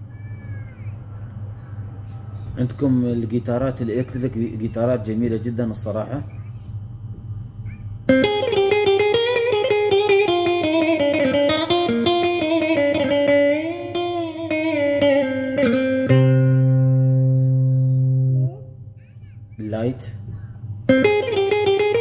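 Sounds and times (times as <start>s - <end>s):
keyboard electric guitar melody: 8.1s - 18.8s, 20.9s - 22.0s.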